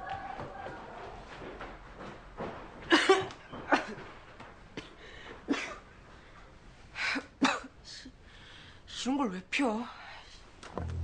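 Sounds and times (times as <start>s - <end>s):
boy coughing: 5.5s - 5.8s.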